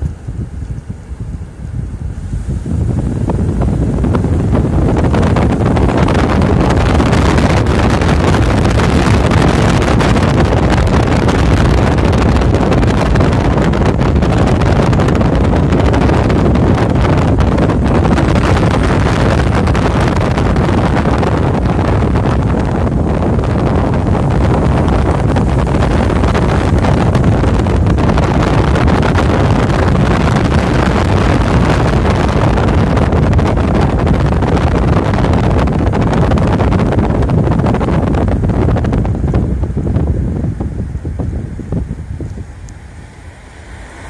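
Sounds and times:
car road noise: 0.0s - 44.0s
wind on microphone: 0.0s - 44.0s.

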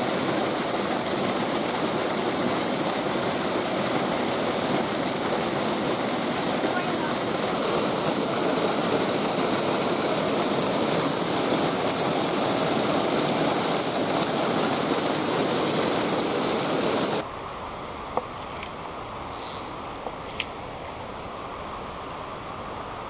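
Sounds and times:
creek water rushing over rocks: 0.0s - 19.3s.

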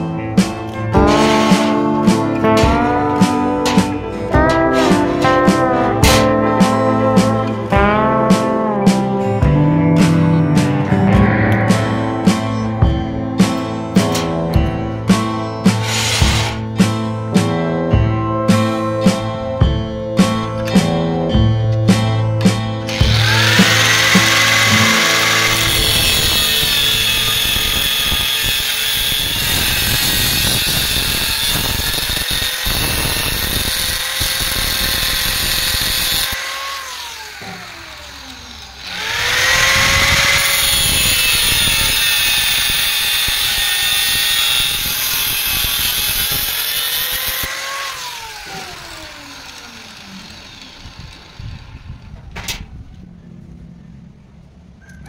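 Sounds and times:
angle grinder cutting steel: 0.0s - 7.8s, 15.6s - 16.9s, 22.9s - 52.0s.

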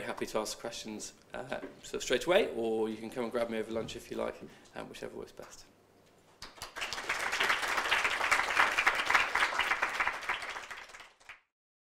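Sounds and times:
audience applauding: 6.4s - 11.5s.

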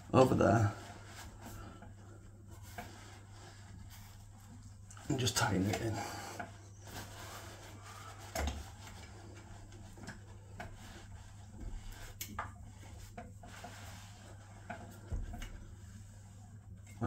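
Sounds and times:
light rubbing: 0.0s - 17.0s
low steady hum: 0.0s - 17.0s.

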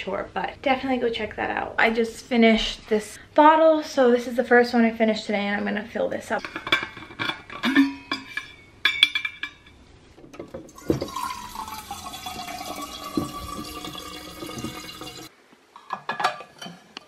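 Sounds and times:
bottle clinking: 10.5s - 15.3s
water pouring into metal bottle: 10.7s - 15.3s.

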